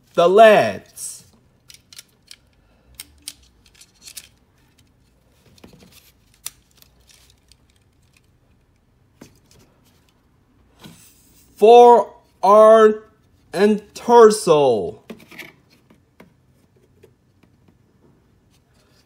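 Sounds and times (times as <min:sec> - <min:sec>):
plastic parts clicking together: 0:01.6 - 0:10.2.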